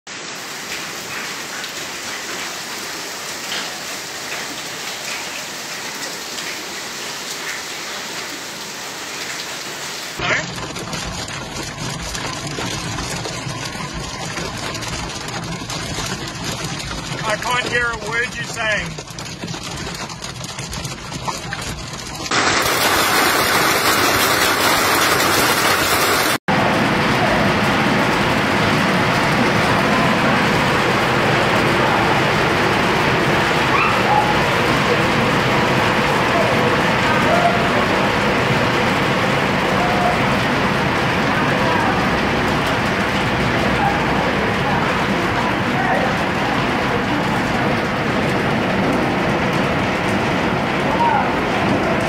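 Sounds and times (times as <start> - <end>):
hail pelting paving: 0.1 - 52.0.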